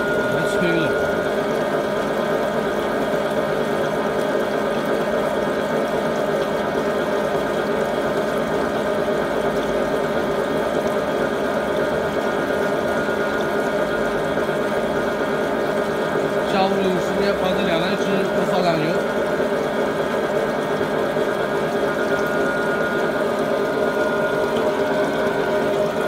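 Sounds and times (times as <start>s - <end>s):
rolling machine hum: 0.0s - 4.5s
coolant running: 0.0s - 26.0s.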